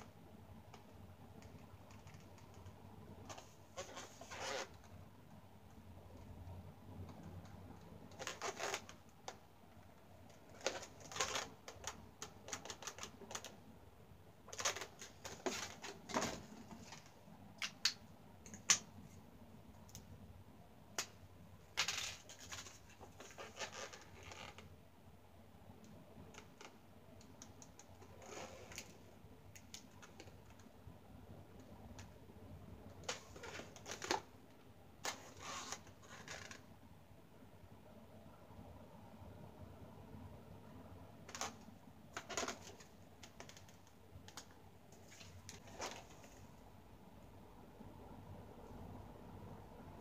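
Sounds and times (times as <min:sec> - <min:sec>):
scratchy rubbing: 0:03.3 - 0:04.8.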